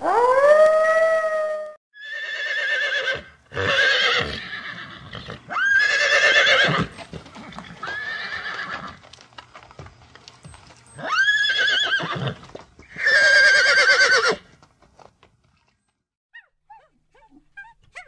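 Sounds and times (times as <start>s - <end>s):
horse whinnying: 2.0s - 9.0s, 11.0s - 14.4s.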